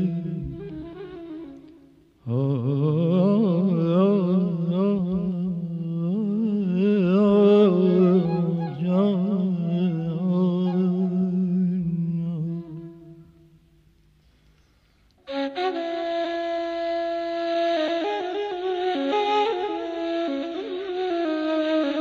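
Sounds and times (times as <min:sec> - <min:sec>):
man singing wordless melismatic passage: 0:00.0 - 0:01.6, 0:02.2 - 0:13.6.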